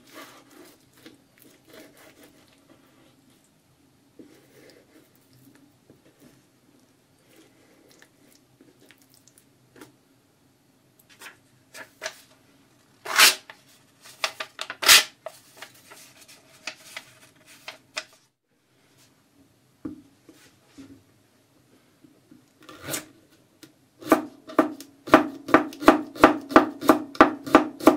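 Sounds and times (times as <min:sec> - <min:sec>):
paper being sliced: 0:13.0 - 0:13.4
paper rustling: 0:13.0 - 0:18.2.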